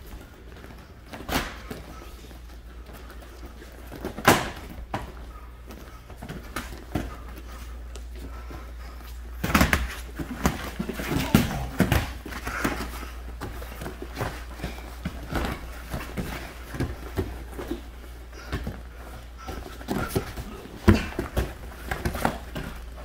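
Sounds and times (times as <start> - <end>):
fighters scuffling: 0.0 - 23.0
boxing gloves hitting: 1.1 - 1.8, 4.0 - 5.2, 19.5 - 22.9.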